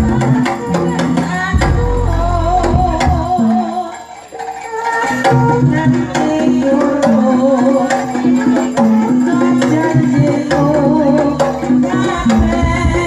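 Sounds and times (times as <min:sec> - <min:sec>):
wavering melody line: 0:00.0 - 0:04.8
hand drums playing driving rhythm: 0:00.0 - 0:13.0.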